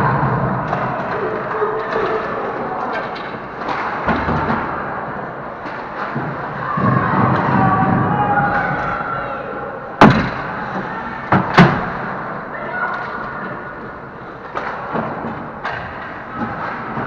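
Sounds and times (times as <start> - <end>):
hockey sticks knocking puck: 10.0 - 17.0.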